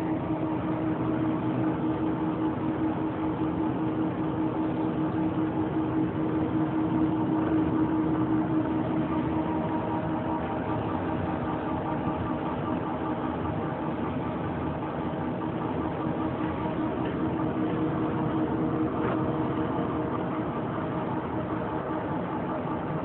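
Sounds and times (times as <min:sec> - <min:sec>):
lathe running: 0:00.0 - 0:23.0.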